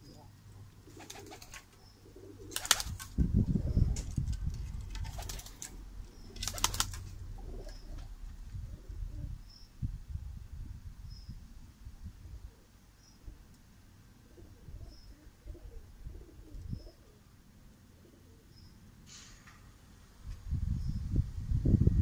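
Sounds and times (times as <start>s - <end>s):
pigeons cooing: 0.0s - 4.2s, 4.9s - 9.4s, 14.2s - 18.6s
pigeon wings flapping: 0.9s - 1.8s, 2.4s - 5.8s, 6.4s - 8.1s.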